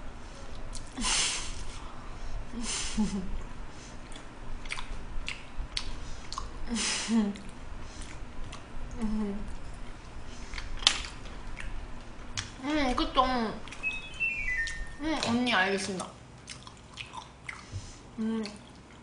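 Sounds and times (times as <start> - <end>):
close-up chewing: 4.0 - 6.5, 7.4 - 12.5, 16.4 - 17.7
wet mouth clicks and smacks: 4.1 - 6.5, 10.5 - 11.8, 16.4 - 17.7
short low hums: 12.5 - 15.3.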